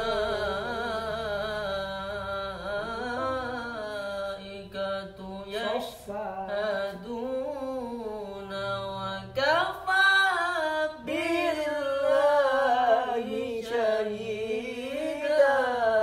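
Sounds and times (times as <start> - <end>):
man singing devotional song: 0.0 - 16.0.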